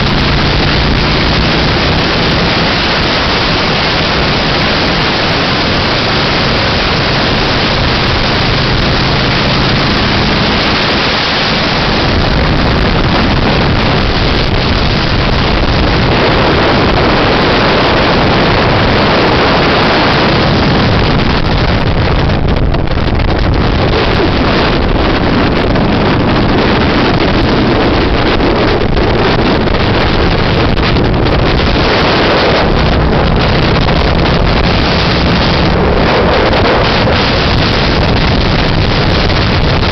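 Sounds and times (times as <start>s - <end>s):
motorcycle engine hum: 0.0s - 39.9s
wind noise on microphone: 0.0s - 39.9s.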